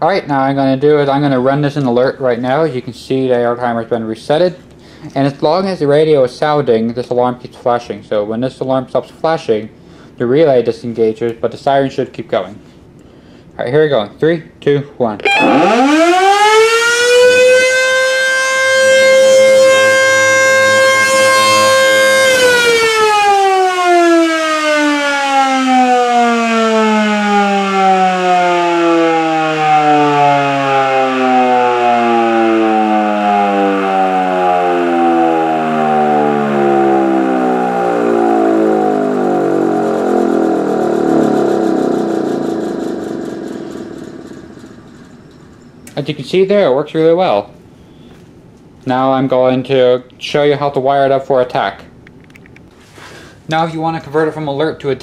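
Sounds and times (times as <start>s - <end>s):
siren winding up and down: 15.2s - 46.0s.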